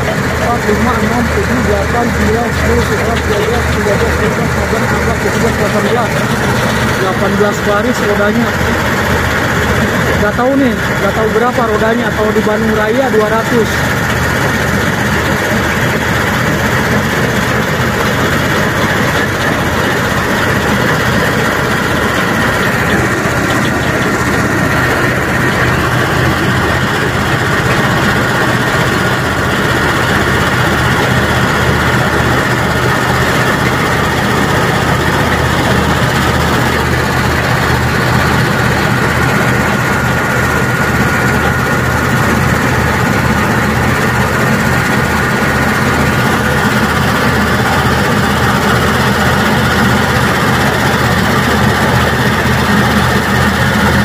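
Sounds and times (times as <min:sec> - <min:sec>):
diesel engine throbbing: 0:00.0 - 0:54.0
steady high whine: 0:00.0 - 0:54.0.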